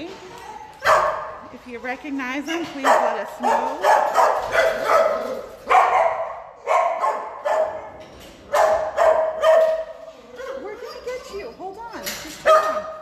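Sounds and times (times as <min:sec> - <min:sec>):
dogs barking: 0:00.4 - 0:01.5, 0:02.8 - 0:11.2, 0:12.4 - 0:13.0.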